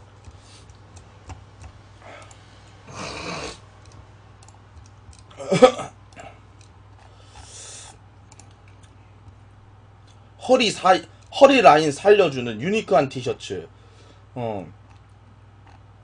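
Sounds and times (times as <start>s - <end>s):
low steady hum: 0.0s - 16.0s
computer mouse clicks: 0.2s - 2.8s, 3.8s - 5.3s, 8.3s - 9.4s.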